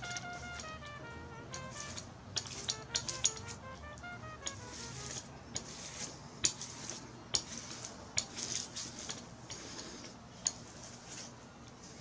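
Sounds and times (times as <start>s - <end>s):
roller and handle clicks: 1.5s - 3.6s
paint roller rubbing over fabric: 1.6s - 3.6s, 4.4s - 10.1s, 10.7s - 12.0s.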